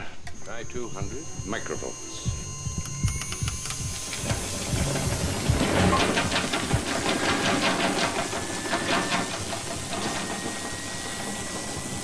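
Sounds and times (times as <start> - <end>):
faint high steady tone: 0.0 - 5.3
machine ticking rapidly: 0.6 - 10.4.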